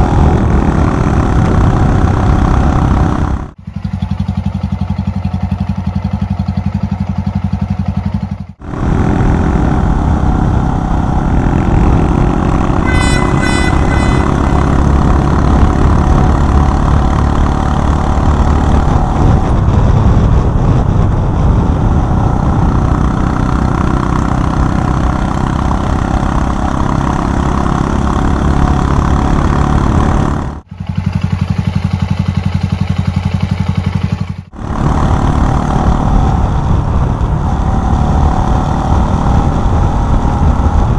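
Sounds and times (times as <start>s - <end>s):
wind noise: 0.0s - 3.5s, 8.6s - 30.4s, 34.6s - 40.9s
motorcycle engine: 0.0s - 40.9s.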